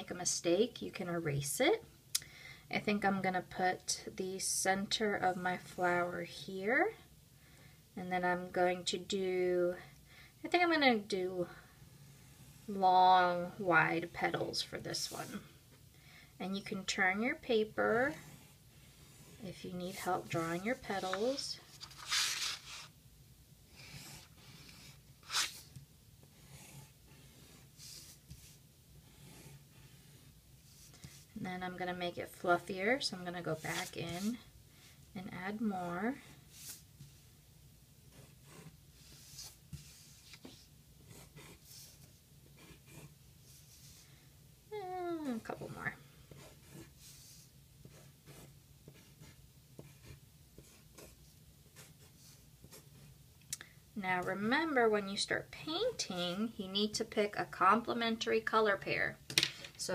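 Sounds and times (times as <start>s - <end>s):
pencil scratching on paper: 17.8s - 22.9s, 26.3s - 31.3s, 33.4s - 34.5s, 38.1s - 44.0s, 45.3s - 53.1s.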